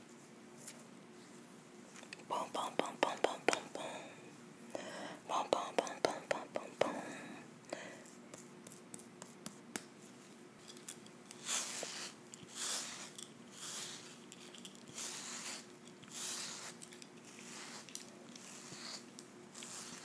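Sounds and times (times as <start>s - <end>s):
brush swishing through hair: 11.3s - 20.0s.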